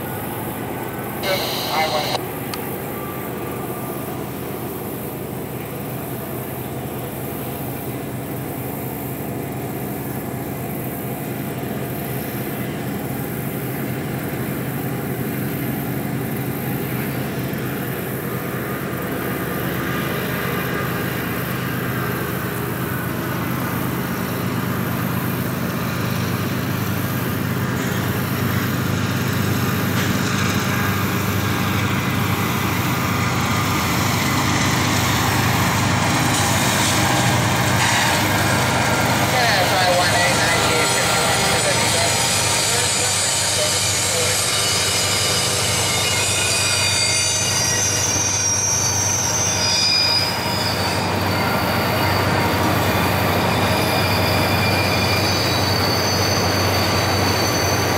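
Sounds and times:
diesel locomotive engine drone: 0:00.0 - 0:57.9
freight cars rumbling: 0:12.6 - 0:45.8.

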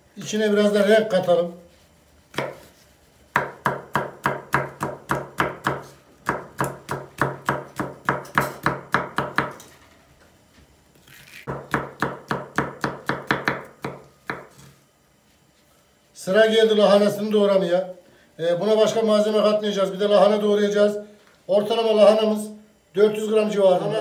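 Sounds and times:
knife chopping on wooden board: 0:02.3 - 0:02.7, 0:03.3 - 0:09.7, 0:11.5 - 0:14.7.

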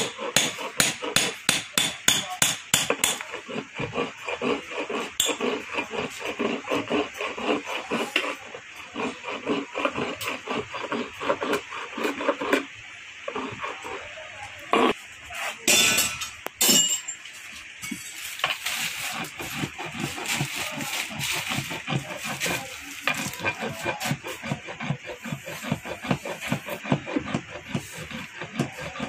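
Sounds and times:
file rasping on metal: 0:00.0 - 0:15.7, 0:18.4 - 0:29.0.

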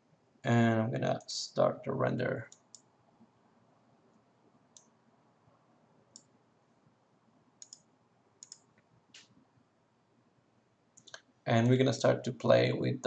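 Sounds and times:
faint room hiss: 0:00.0 - 0:13.0
computer mouse clicks: 0:02.5 - 0:02.9, 0:04.7 - 0:04.9, 0:06.1 - 0:06.3, 0:07.6 - 0:09.4, 0:11.0 - 0:11.3.

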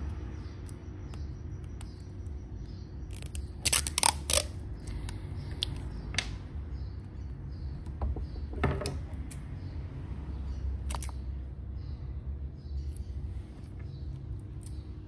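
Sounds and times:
sticky tape ripping: 0:03.1 - 0:04.6.

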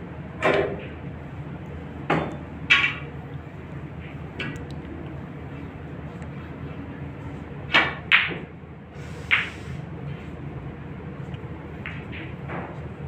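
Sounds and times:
low room hum: 0:00.0 - 0:13.0
cue striking ball: 0:07.7 - 0:08.5
snooker balls clicking: 0:11.7 - 0:12.8.

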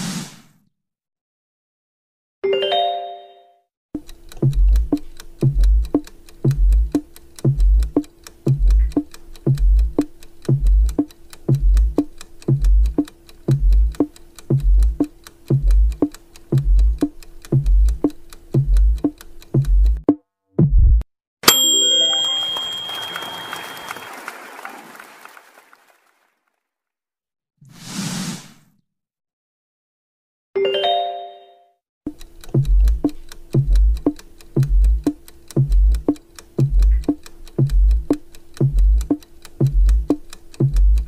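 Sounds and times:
clock-like ticks: 0:04.0 - 0:20.2, 0:32.1 - 0:41.0
short chime: 0:21.4 - 0:24.2.

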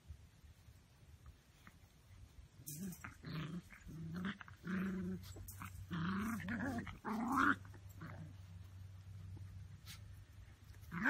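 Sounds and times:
puppies growling: 0:02.7 - 0:10.1.

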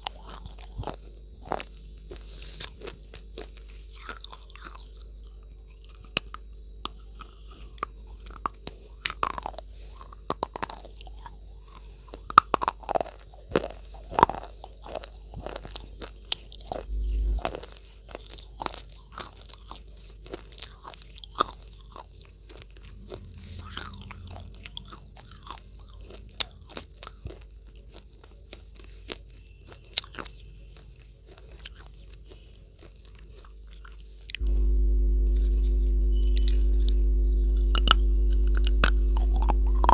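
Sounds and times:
crunchy chewing: 0:00.0 - 0:39.9
steady electronic tone: 0:16.7 - 0:17.5, 0:34.4 - 0:39.9.

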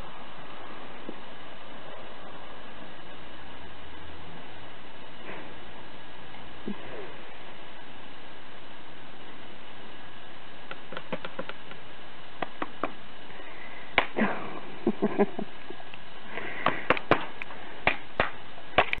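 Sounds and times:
steady background hiss: 0:00.0 - 0:19.0
sharp clicks and knocks: 0:10.7 - 0:13.0.

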